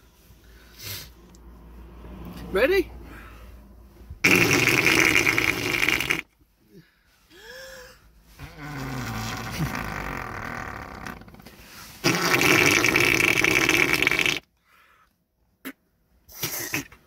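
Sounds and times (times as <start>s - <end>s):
mouth fart noises: 4.2s - 6.3s, 8.4s - 14.5s, 15.6s - 17.0s.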